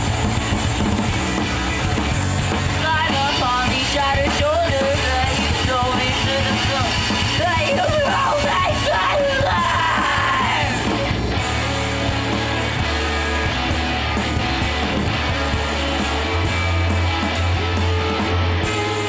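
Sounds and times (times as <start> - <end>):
live rock band playing: 0.0 - 19.0
woman singing: 2.8 - 10.8.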